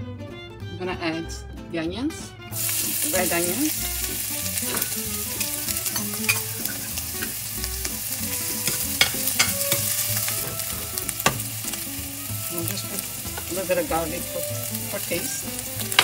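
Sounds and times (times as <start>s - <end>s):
onion sizzling in oil: 2.5s - 16.0s
metal spoon scraping pan: 4.6s - 7.4s, 8.3s - 11.7s.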